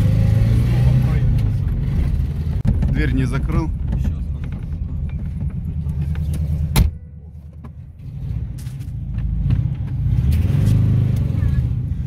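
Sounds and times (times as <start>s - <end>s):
car engine revving: 0.0s - 6.8s, 8.0s - 12.0s
car door slamming: 6.7s - 7.0s.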